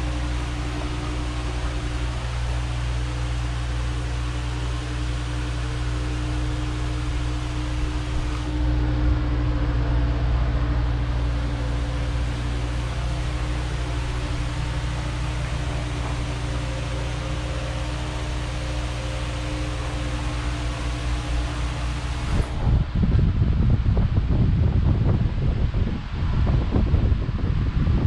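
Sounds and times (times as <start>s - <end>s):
mechanical hum with hiss: 0.0s - 28.0s
wind buffeting microphone: 22.2s - 28.0s.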